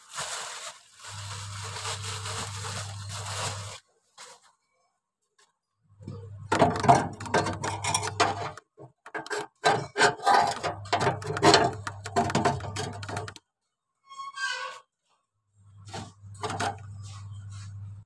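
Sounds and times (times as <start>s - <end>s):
low steady hum: 5.9s - 13.4s.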